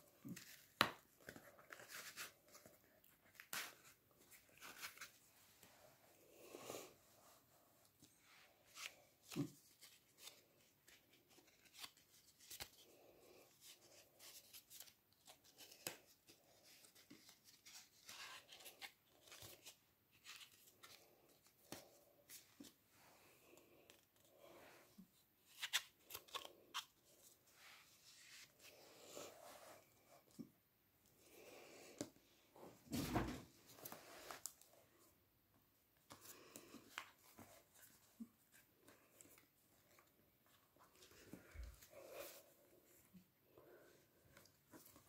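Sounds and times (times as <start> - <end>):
paper and card rustling: 0.1 - 5.3, 8.0 - 22.8.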